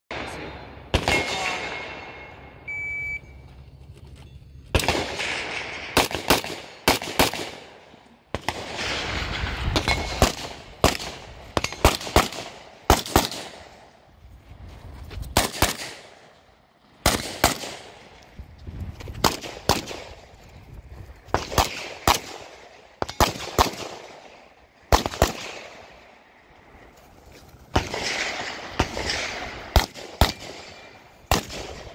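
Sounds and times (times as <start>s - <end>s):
rifle shots echoing: 0.1s - 2.5s, 4.7s - 14.0s, 15.4s - 18.2s, 19.2s - 20.3s, 21.3s - 26.4s, 27.7s - 31.9s
shot timer beep: 2.2s - 3.4s.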